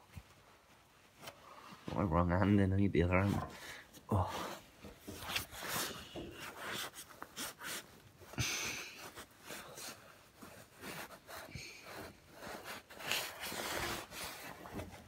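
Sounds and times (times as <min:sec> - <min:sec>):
rustling and scraping: 0:00.0 - 0:15.0
breathing close to microphone: 0:03.4 - 0:04.7.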